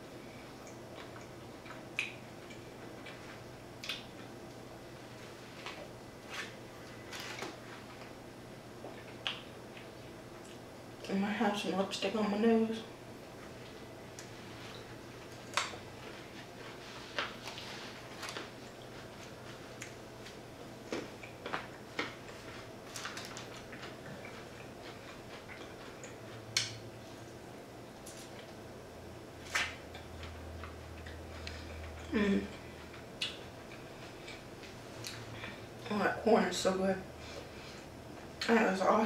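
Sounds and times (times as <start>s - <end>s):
faint steady hum: 0.0s - 39.0s
person chewing crunchy food: 14.1s - 27.4s.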